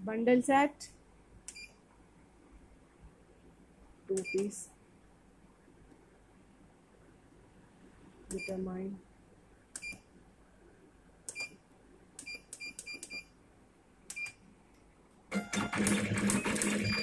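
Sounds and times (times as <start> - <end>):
keypad beeps: 1.5 - 1.8, 4.1 - 4.5, 9.8 - 10.0, 11.3 - 11.6, 12.2 - 13.3, 14.1 - 14.4, 15.4 - 17.0
machine running with rapid clicking: 15.5 - 17.0.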